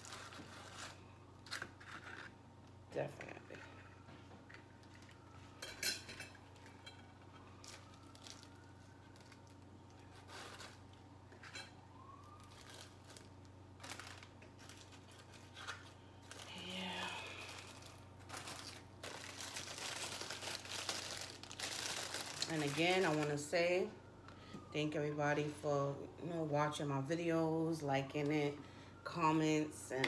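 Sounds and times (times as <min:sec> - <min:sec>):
plastic crinkling: 0:00.0 - 0:02.4, 0:06.5 - 0:23.5.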